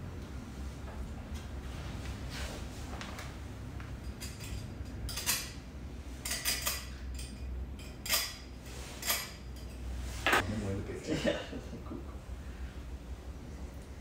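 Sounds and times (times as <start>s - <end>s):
metal fittings clinking together: 4.1s - 5.6s, 6.2s - 8.4s.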